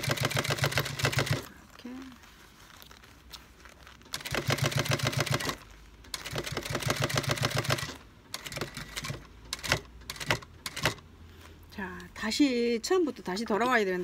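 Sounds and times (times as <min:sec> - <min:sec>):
sewing machine stitching: 0:00.0 - 0:01.5, 0:04.1 - 0:11.0.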